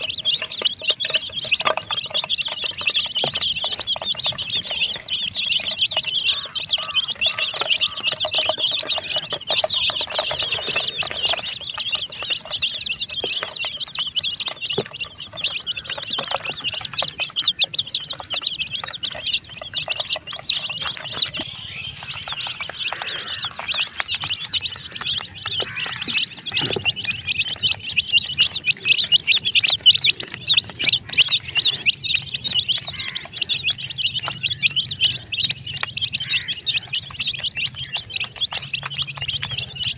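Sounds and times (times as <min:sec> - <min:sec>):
baby chicks peeping: 0:00.0 - 0:39.9.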